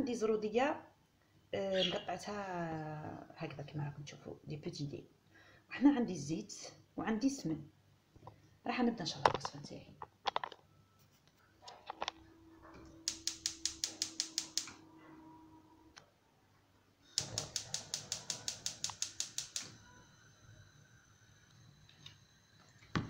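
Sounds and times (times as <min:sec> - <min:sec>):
spark igniter clicking rapidly: 0:13.0 - 0:14.8, 0:17.2 - 0:19.8.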